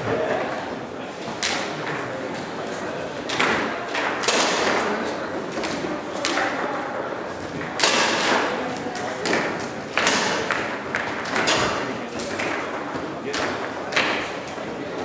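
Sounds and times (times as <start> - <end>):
murmur of voices: 0.0 - 15.0
table football knocks: 3.3 - 6.6, 7.5 - 14.6.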